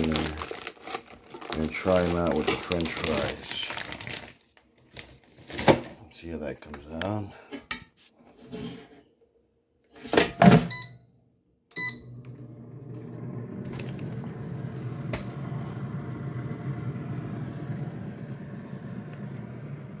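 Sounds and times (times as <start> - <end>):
control panel beeps: 10.7 - 11.0, 11.7 - 12.1
fan humming: 12.2 - 20.0.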